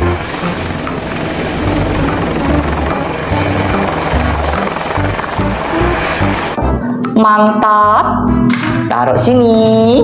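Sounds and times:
helicopter rotor and engine: 0.0s - 6.6s.

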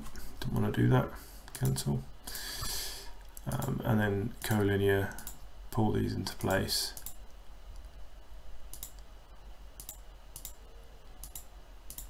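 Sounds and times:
steady low hum: 0.0s - 12.0s
computer mouse clicks: 8.7s - 9.1s, 9.8s - 10.6s, 11.2s - 12.0s.

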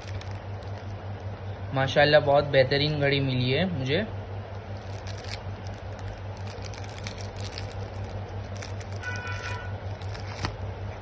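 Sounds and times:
plastic bag crinkling: 0.0s - 1.0s, 4.6s - 10.7s
steady low hum: 0.0s - 11.0s.

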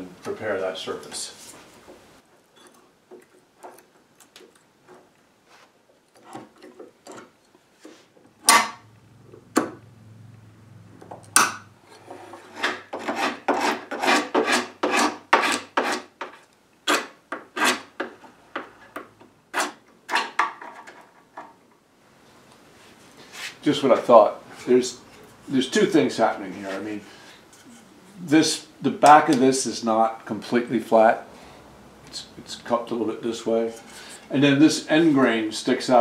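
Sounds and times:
nails cracking out of wood: 8.4s - 8.8s
hand scraper scraping wood: 11.9s - 18.9s, 19.5s - 20.4s.

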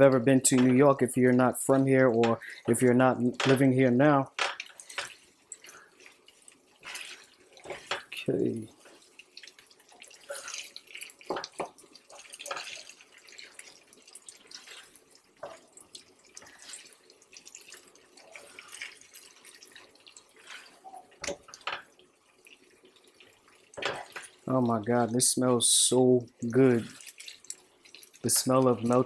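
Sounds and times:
spatula scraping griddle: 6.8s - 8.2s.

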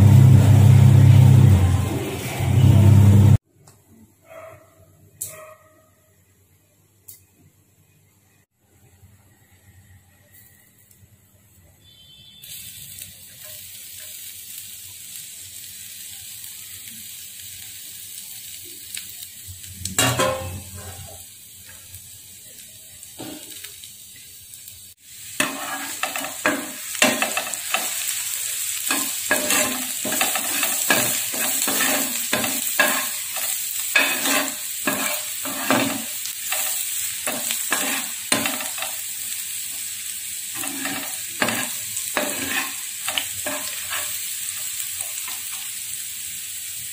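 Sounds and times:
garlic sizzling in oil: 11.7s - 46.9s
ladle scraping pan: 28.9s - 38.9s, 40.6s - 44.1s.

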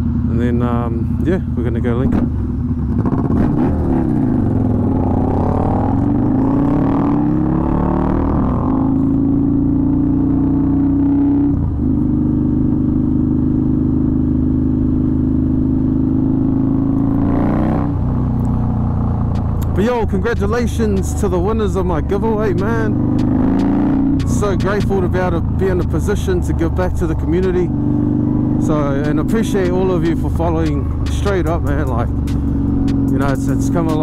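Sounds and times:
motorcycle engine accelerating: 0.0s - 34.0s.

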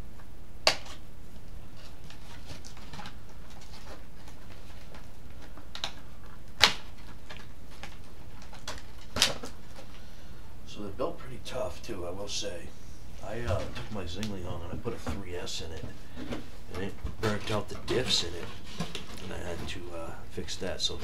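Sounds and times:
cardboard sharp snaps: 0.6s - 1.0s, 5.8s - 7.9s
cardboard rustling: 1.4s - 10.0s, 13.4s - 20.0s.

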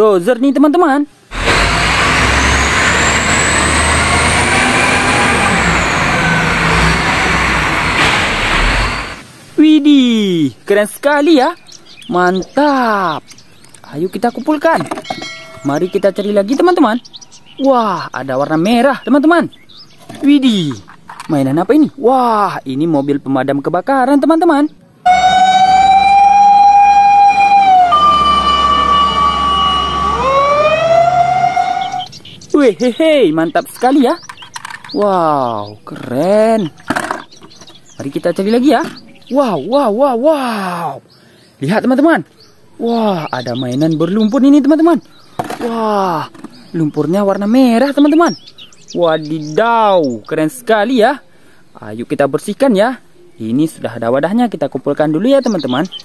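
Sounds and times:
heavy vehicle engine whining: 1.3s - 9.3s, 25.0s - 32.5s.

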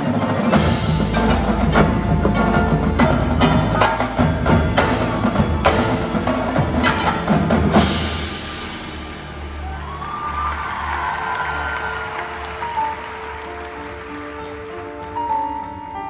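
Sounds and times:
snare drums: 0.0s - 10.0s
cymbals: 0.0s - 10.6s
marimbas: 0.0s - 10.7s
percussion ensemble playing: 0.0s - 16.0s.

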